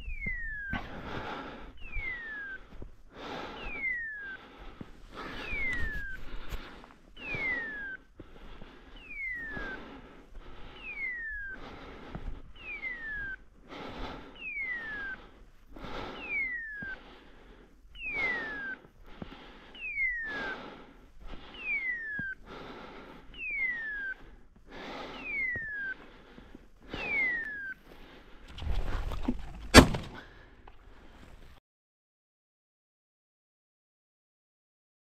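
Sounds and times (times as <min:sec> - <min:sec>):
heavy whistling breathing: 0:00.0 - 0:29.5, 0:30.1 - 0:31.6
shotgun shot: 0:29.7 - 0:30.2.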